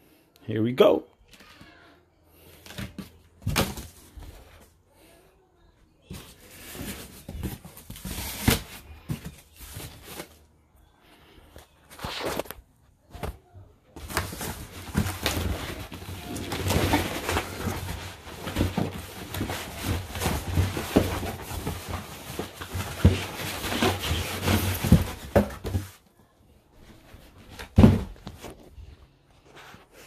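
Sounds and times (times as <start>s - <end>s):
cardboard box rustling and scraping: 6.1s - 10.4s, 14.0s - 26.0s.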